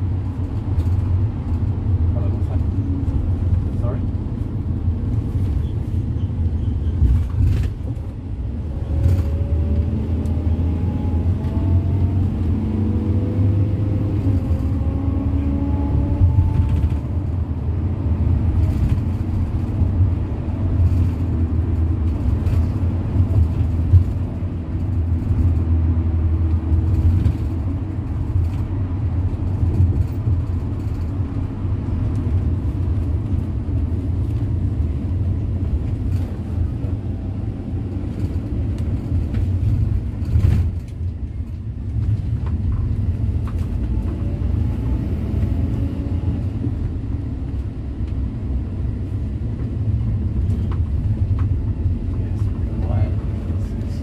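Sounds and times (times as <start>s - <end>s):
rising engine whine: 0.0s - 54.0s
vehicle engine and road noise: 0.0s - 54.0s.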